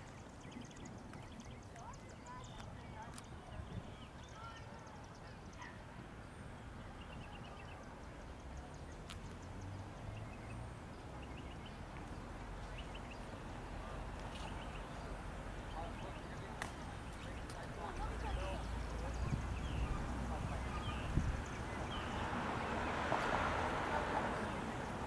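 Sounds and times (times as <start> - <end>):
distant diesel locomotive rumble: 12.4 - 25.0.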